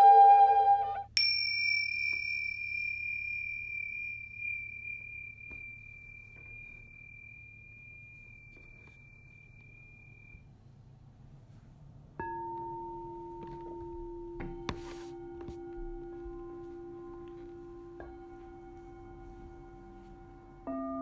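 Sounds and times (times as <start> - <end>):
held woodwind-like note: 0.0 - 1.1
bell-like tone ringing: 1.1 - 10.4, 12.2 - 21.0.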